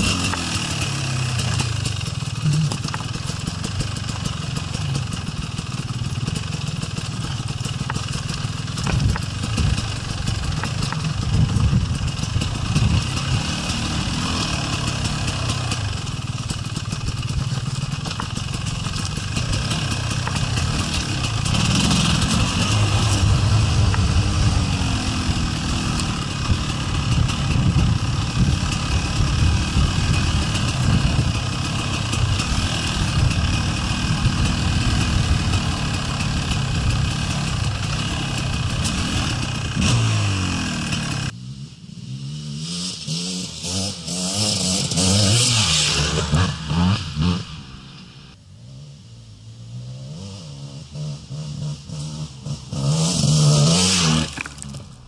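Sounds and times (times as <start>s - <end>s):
distant dirt bike engine: 0.0s - 55.0s
motorcycle engine revving: 0.0s - 55.0s.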